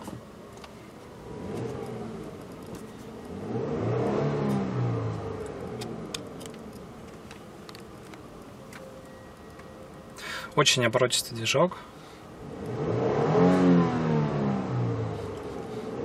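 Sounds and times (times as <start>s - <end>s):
car engine revving: 1.2s - 6.9s, 12.4s - 16.0s.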